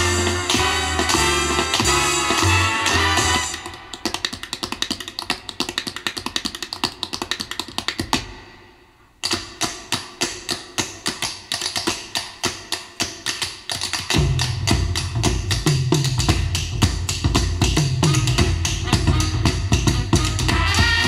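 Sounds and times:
band with deep bass: 0:00.0 - 0:03.5, 0:14.2 - 0:21.0
quick sharp tap dancing: 0:00.0 - 0:08.5, 0:09.2 - 0:21.0.

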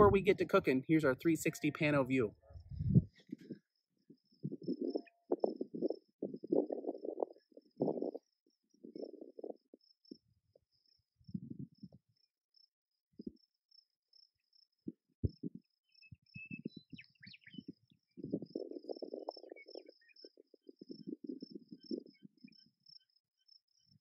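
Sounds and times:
wind rumble on microphone: 0:00.0 - 0:00.6, 0:02.4 - 0:10.6, 0:11.2 - 0:12.1, 0:14.8 - 0:22.5
high pulsing insect trill: 0:04.1 - 0:12.7, 0:17.6 - 0:23.6
bird chirps: 0:15.8 - 0:24.0.

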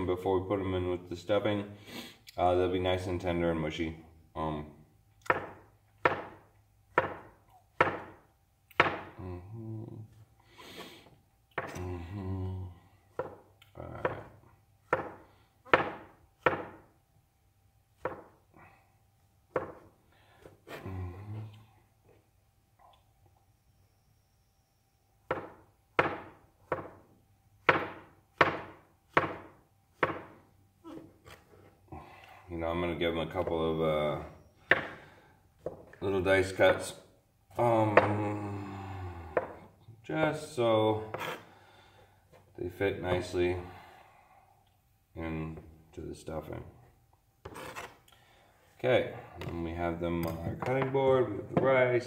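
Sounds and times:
knife chopping on plastic board: 0:05.3 - 0:09.1, 0:14.9 - 0:16.8, 0:18.0 - 0:18.4, 0:19.5 - 0:19.9, 0:25.3 - 0:27.0, 0:27.6 - 0:30.4, 0:34.7 - 0:35.0.

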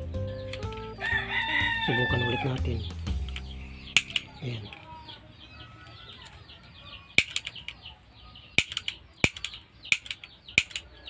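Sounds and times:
small birds chirping: 0:00.0 - 0:11.0
loud sharp clicks: 0:03.2 - 0:04.4, 0:07.2 - 0:07.8, 0:08.6 - 0:10.9.

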